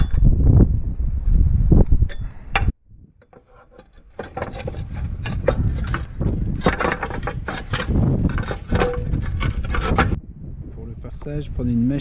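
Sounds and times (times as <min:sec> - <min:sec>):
clay tiles scraping and knocking: 0:02.6 - 0:10.2.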